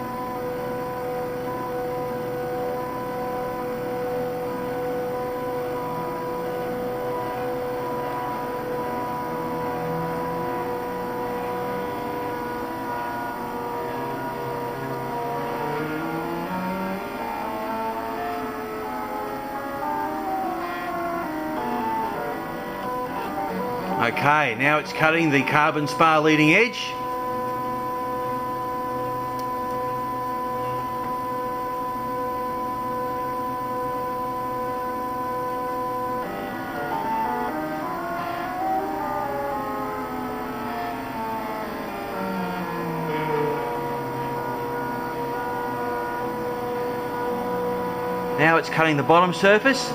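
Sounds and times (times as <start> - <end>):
low hum: 0.0 - 49.9
low motor tone: 0.0 - 49.9
stepper motors whining: 0.0 - 49.9.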